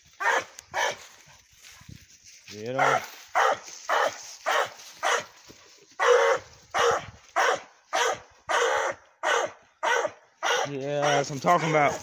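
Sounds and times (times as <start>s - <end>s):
dog barking: 0.2s - 1.0s, 2.8s - 5.4s, 6.0s - 12.0s.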